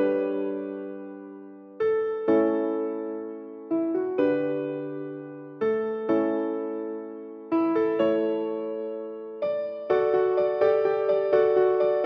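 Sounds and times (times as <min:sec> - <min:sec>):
soft piano chords: 0:00.0 - 0:12.0.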